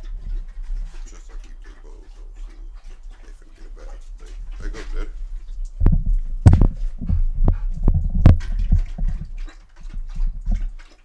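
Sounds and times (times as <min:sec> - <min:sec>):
wind buffeting microphone: 0:00.0 - 0:11.0
microphone handling knocks: 0:04.5 - 0:10.7.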